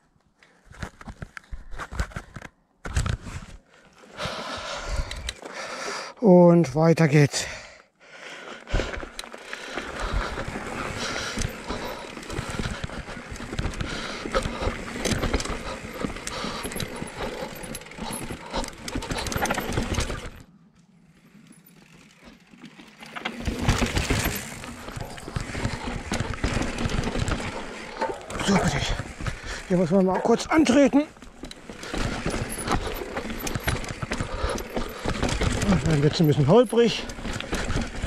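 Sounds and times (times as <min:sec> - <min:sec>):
bike tyres crunching over dirt: 0:08.2 - 0:38.0
bike rattling: 0:08.3 - 0:38.0.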